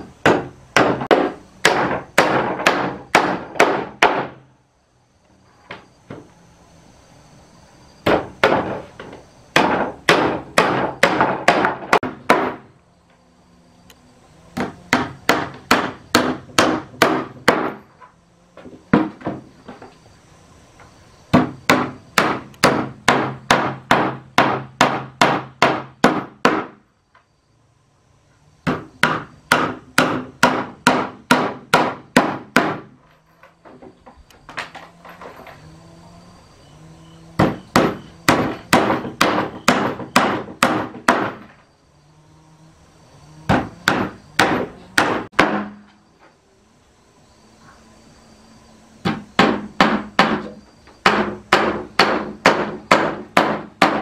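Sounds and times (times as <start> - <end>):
hammer driving nails into wood: 0.2 - 4.4, 9.6 - 12.7, 14.6 - 17.8, 21.3 - 26.8, 28.7 - 33.0, 37.4 - 41.5, 43.5 - 45.9, 49.0 - 54.0.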